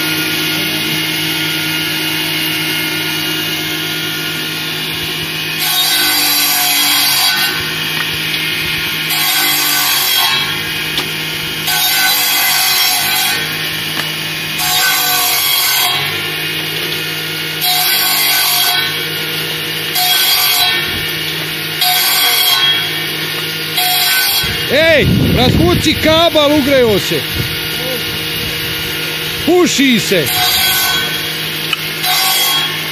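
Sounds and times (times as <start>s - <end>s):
table saw running: 0.0s - 32.9s
saw blade cutting a branch: 5.6s - 19.2s, 20.0s - 24.7s, 25.6s - 32.9s.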